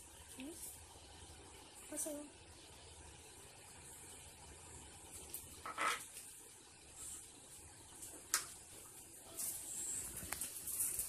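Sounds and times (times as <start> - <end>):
pot scraping: 5.6 - 6.2.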